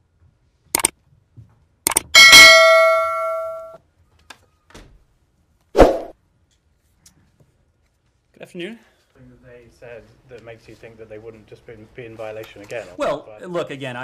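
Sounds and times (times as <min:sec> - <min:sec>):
notification bell ding: 0:02.2 - 0:03.8.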